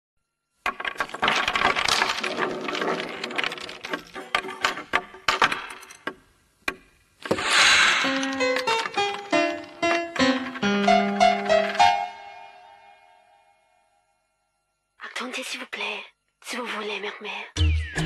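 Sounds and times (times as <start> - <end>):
blocks clattering together: 0.6 - 10.6
plucked musical notes: 8.0 - 12.5.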